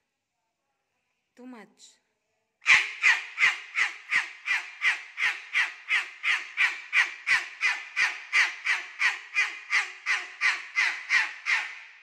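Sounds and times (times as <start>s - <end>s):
cockatoo screaming: 2.6s - 11.9s.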